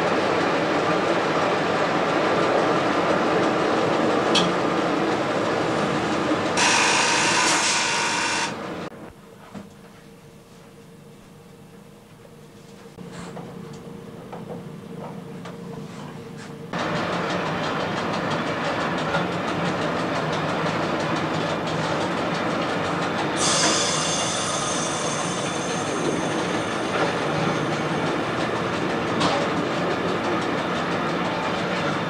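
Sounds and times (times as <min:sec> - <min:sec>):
railcar wheels rumbling on rails: 0:00.0 - 0:08.9, 0:16.7 - 0:32.0.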